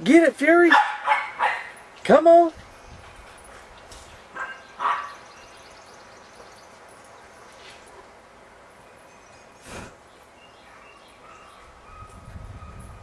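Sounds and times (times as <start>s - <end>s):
dog barking: 0.7s - 1.8s, 4.4s - 5.2s, 10.8s - 13.0s.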